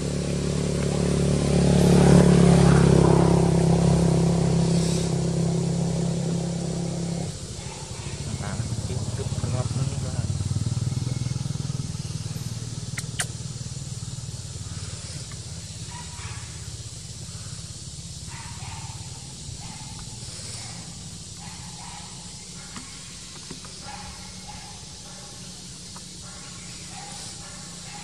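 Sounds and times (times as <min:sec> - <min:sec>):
faint short calls: 0:12.8 - 0:13.7
sharp click: 0:13.0 - 0:13.4.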